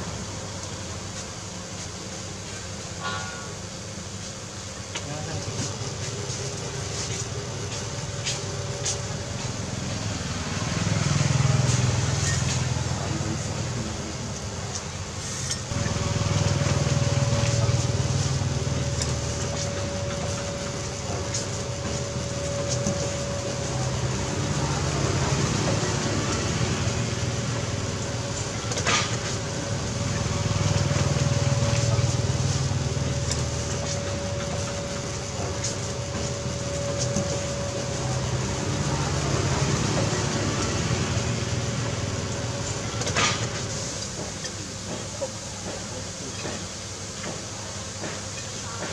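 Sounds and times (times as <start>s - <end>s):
traffic rumble: 4.7s - 46.4s
steady hum: 12.7s - 47.9s.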